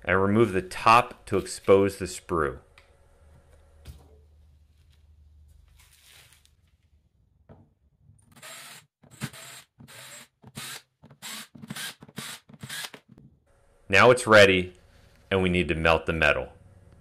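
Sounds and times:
cordless drill whining: 8.4s - 13.0s.

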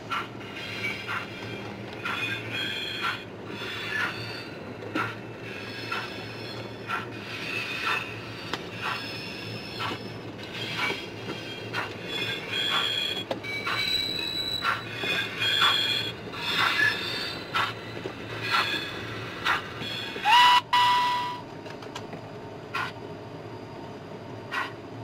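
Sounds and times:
wheels squealing: 0.8s - 17.7s.

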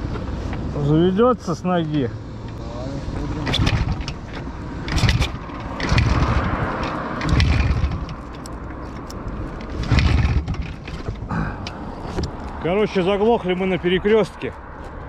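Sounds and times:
motorcycle kickstart clatter: 3.4s - 8.4s, 9.6s - 11.1s.

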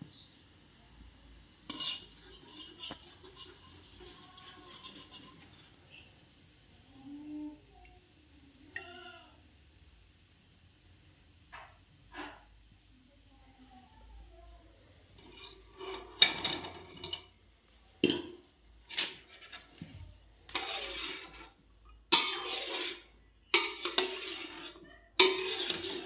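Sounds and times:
utensils clinking against metal pot: 1.7s - 5.8s, 15.2s - 17.3s, 18.0s - 19.8s, 20.5s - 26.0s.

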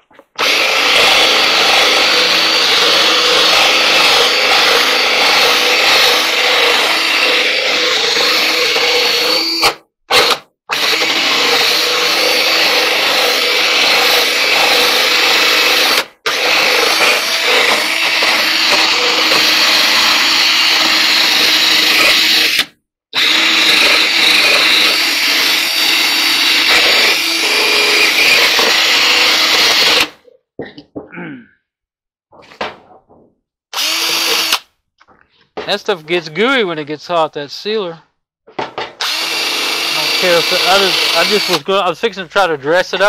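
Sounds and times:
cordless drill scrubbing metal: 0.3s - 30.2s, 33.7s - 34.7s, 39.0s - 43.0s.

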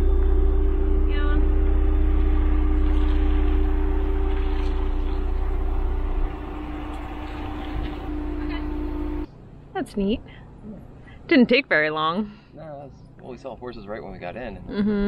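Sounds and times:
suv engine idling: 0.0s - 9.3s.

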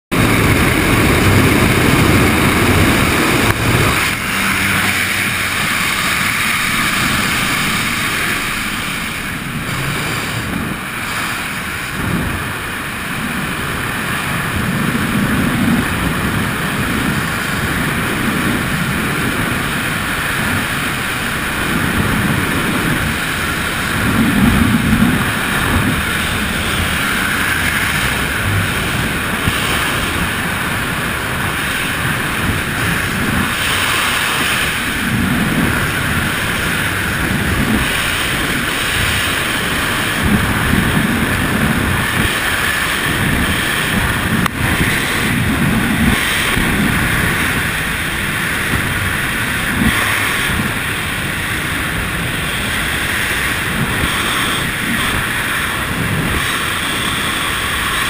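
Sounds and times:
aircraft noise at open door: 0.1s - 13.9s
freefall wind rushing: 0.1s - 58.0s.

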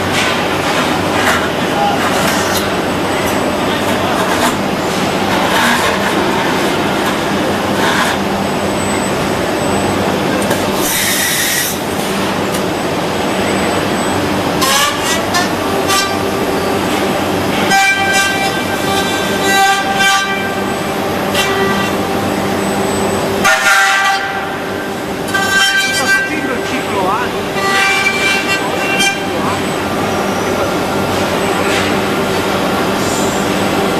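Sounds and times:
pitched whine: 7.3s - 33.9s
robot cutting machine noise: 14.6s - 32.8s.

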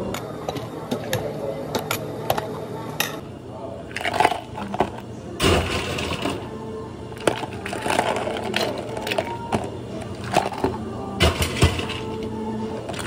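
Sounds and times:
ice clattering into plastic cup: 7.2s - 12.1s.

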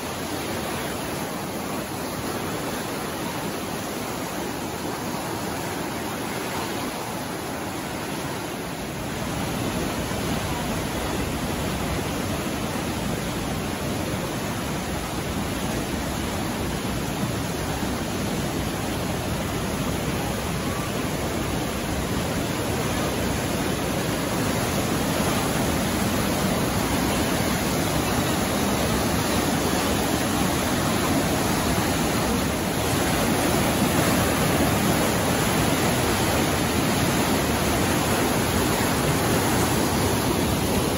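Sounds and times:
creek water rushing through gorge: 0.0s - 40.9s.

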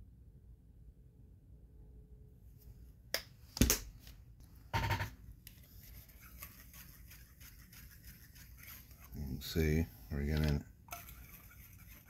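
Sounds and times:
stick stirring paint in cup: 5.5s - 12.0s.

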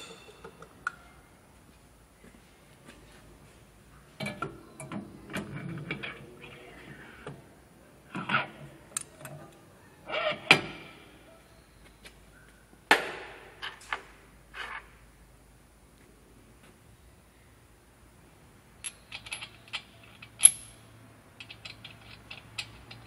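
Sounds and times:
steel parts clinking and scraping: 0.0s - 0.7s, 18.8s - 23.0s.

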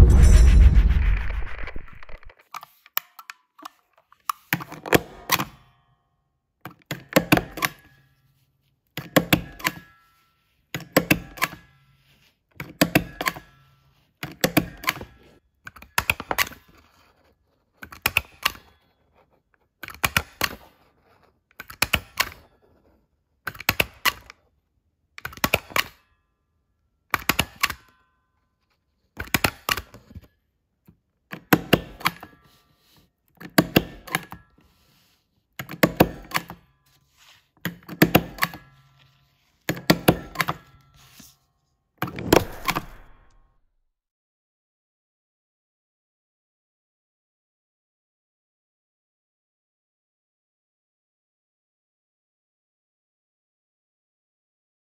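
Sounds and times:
stapler clicking through paper: 27.2s - 27.9s.

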